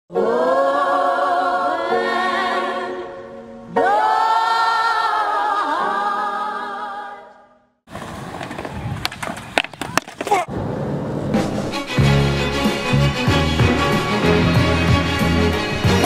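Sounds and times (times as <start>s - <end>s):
vocal music holding a chord: 0.1s - 7.5s
skateboard clacks: 7.9s - 10.5s
skateboard rolling on concrete: 7.9s - 15.9s.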